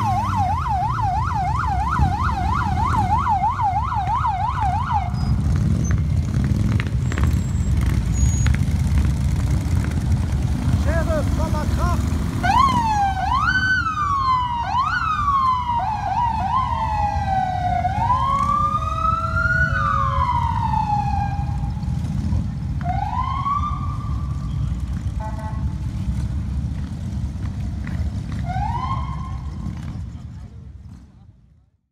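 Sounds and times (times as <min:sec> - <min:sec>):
siren wailing: 0:00.0 - 0:05.6, 0:12.3 - 0:22.1, 0:22.8 - 0:24.5, 0:28.4 - 0:29.5
motorcycle engines rumbling: 0:00.0 - 0:31.8.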